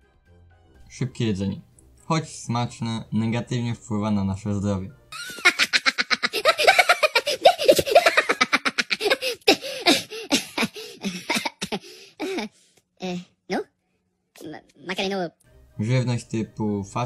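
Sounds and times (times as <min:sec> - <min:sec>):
high squeaky laughter: 0:05.2 - 0:12.5.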